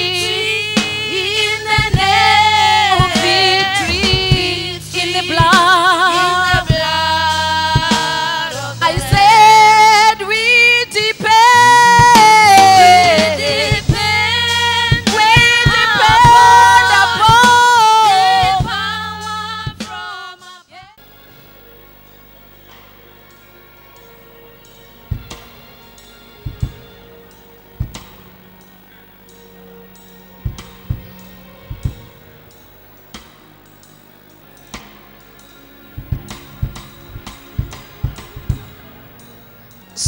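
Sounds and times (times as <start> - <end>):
sustained low accompaniment: 0.0 - 19.9, 21.0 - 40.0
woman singing with vibrato: 0.0 - 21.0.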